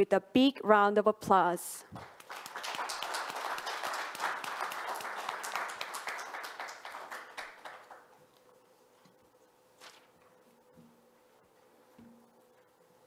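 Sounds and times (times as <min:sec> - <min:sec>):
audience applauding: 0:02.0 - 0:08.1.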